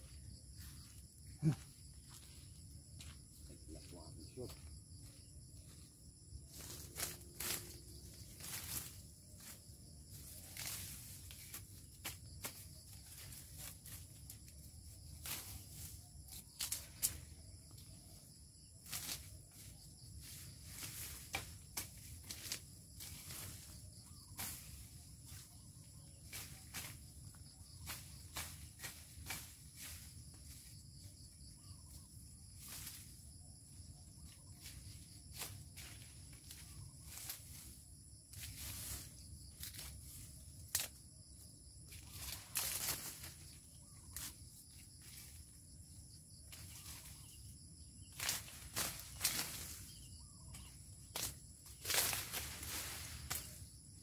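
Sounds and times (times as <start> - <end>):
blade slashing through dry leaves: 51.2 - 53.6.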